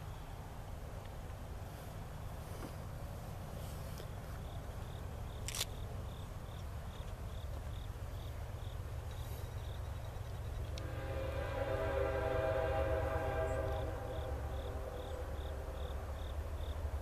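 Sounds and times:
diesel freight train rumble: 0:00.0 - 0:17.0
insect chirping: 0:04.0 - 0:11.1, 0:12.8 - 0:17.0.

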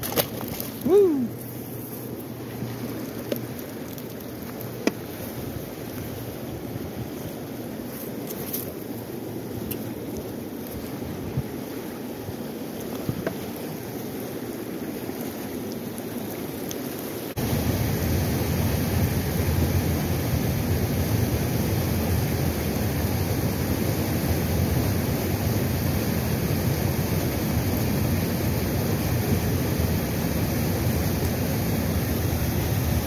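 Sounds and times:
wind noise on microphone: 0:10.8 - 0:11.6.

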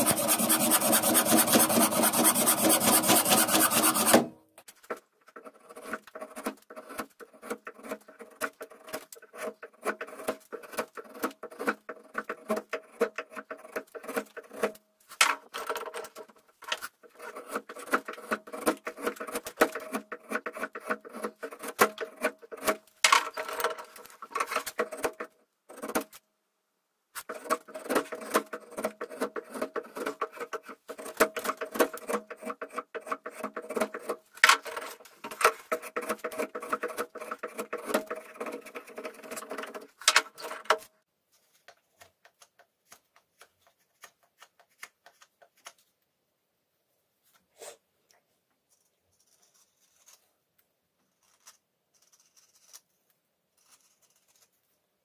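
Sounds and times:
blade scraping bark off wood: 0:00.0 - 0:04.3, 0:27.2 - 0:39.8.

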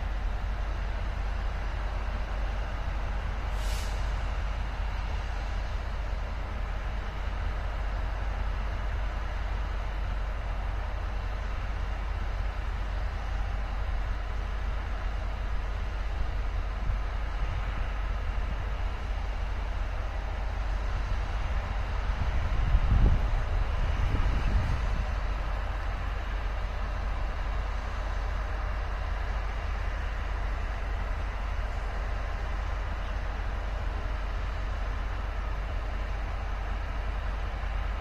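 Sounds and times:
low outdoor rumble: 0:00.0 - 0:38.0
air brakes hissing: 0:03.4 - 0:04.5.

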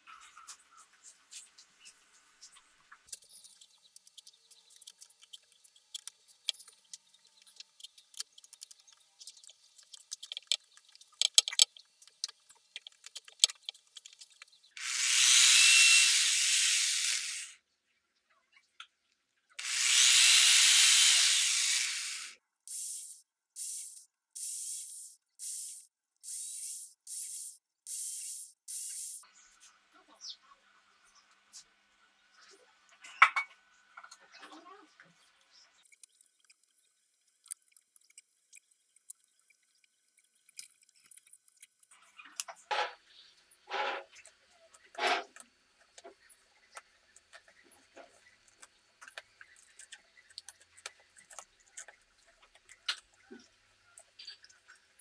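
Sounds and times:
cordless drill driving a screw: 0:14.8 - 0:17.5, 0:19.6 - 0:22.4.

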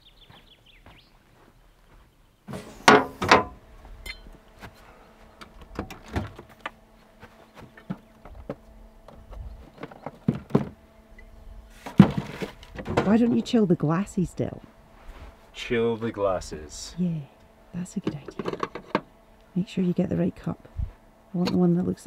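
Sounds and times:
faint steady hum: 0:00.0 - 0:22.0
loud thunks: 0:02.5 - 0:03.6
things handled inside fridge: 0:11.8 - 0:13.5.

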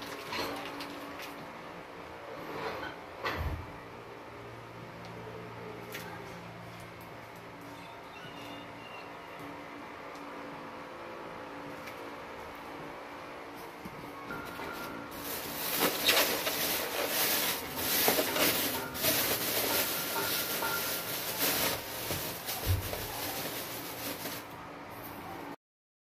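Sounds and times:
plastic bag rustling and crinkling: 0:14.8 - 0:24.5.

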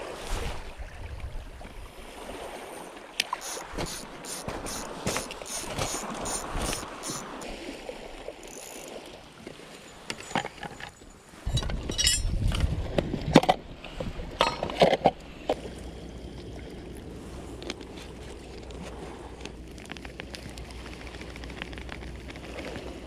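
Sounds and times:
camp gear clinking and knocking: 0:03.4 - 0:07.5, 0:08.4 - 0:12.7, 0:14.4 - 0:15.2
fishing reel drag clicking: 0:03.4 - 0:07.5, 0:08.4 - 0:09.2.

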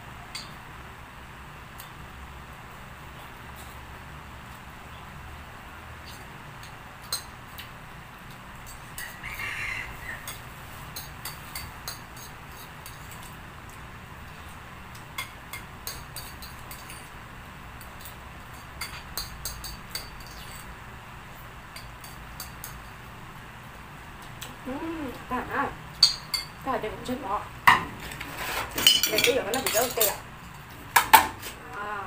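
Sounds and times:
metal spoon scraping ceramic plate: 0:28.0 - 0:30.2.

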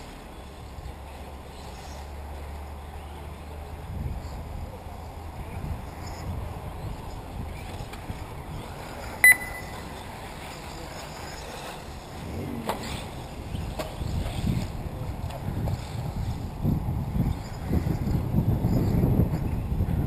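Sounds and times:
wind on microphone: 0:03.7 - 0:20.0
short high electronic beep: 0:09.2 - 0:09.9.

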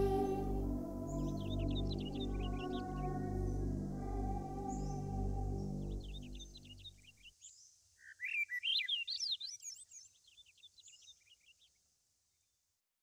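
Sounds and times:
music: 0:00.0 - 0:06.8
songbird twittering song: 0:00.0 - 0:11.8.

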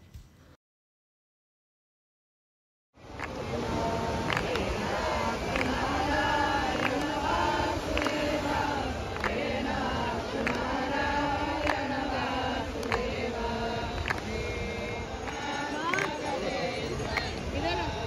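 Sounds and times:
voices singing a chant: 0:03.0 - 0:18.0.

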